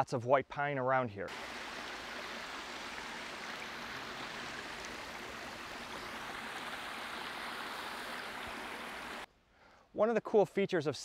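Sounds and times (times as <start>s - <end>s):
creek water rushing over rocks: 1.3s - 9.3s.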